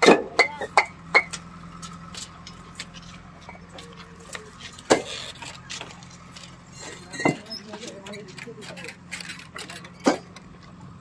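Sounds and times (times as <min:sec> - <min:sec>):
bricks clinking and knocking: 0:03.4 - 0:10.5.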